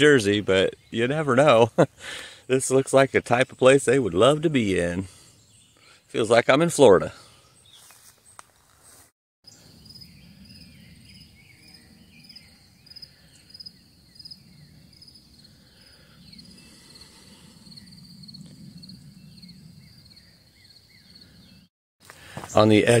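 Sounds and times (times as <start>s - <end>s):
insects chirping: 9.5s - 21.6s.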